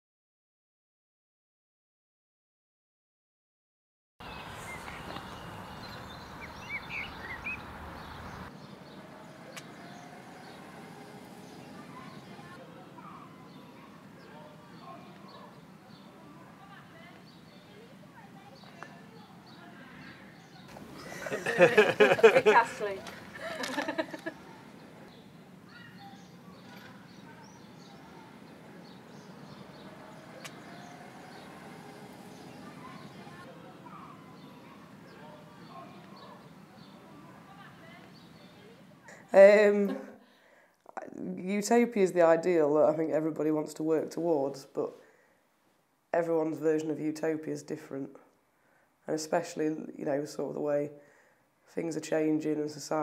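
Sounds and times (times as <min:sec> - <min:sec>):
small birds chirping: 0:04.2 - 0:45.4
outdoor background noise: 0:04.2 - 0:53.0.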